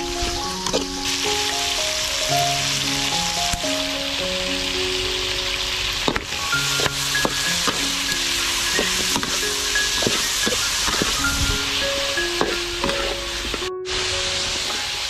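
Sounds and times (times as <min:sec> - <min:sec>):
chicken sizzling in oil: 0:00.0 - 0:15.0
soft background music: 0:00.0 - 0:15.0
metal spatula scraping a wok: 0:12.4 - 0:13.6.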